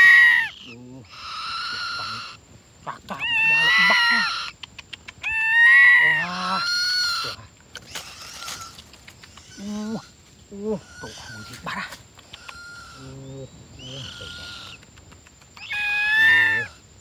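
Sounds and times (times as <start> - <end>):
bird of prey screaming: 0.0 - 2.4, 3.1 - 4.5, 5.2 - 8.7, 15.6 - 16.8.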